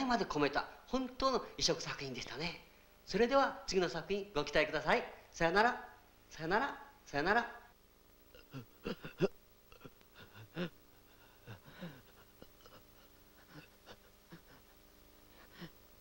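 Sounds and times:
faint hum: 0.0 - 16.0
person sighing: 8.4 - 12.1.

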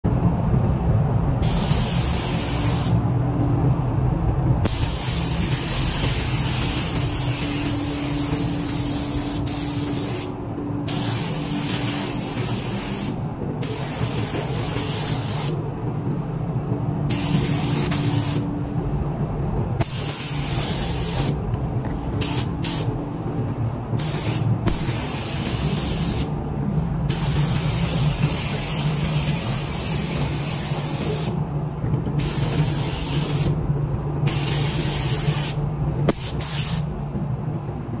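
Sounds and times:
steady low hum: 0.0 - 38.0
spray gun hissing: 1.4 - 3.0, 4.7 - 10.3, 10.9 - 15.6, 17.1 - 18.4, 19.8 - 21.4, 22.2 - 22.9, 24.0 - 26.3, 27.1 - 31.4, 32.2 - 33.5, 34.3 - 36.9.

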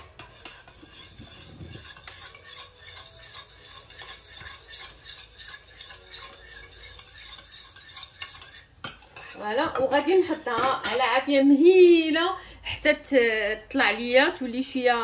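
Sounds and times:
spoon scraping and clinking pot: 0.0 - 11.2.

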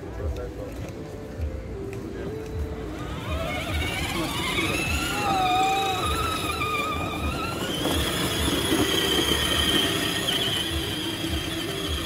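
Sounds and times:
electric motor whine of toy quad: 2.8 - 12.0.

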